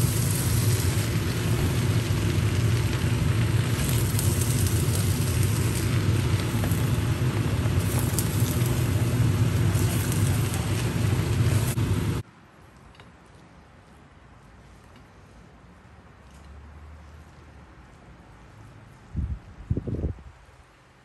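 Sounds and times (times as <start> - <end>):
low hum: 0.0 - 12.2
noodles sizzling in a pan: 0.0 - 12.2.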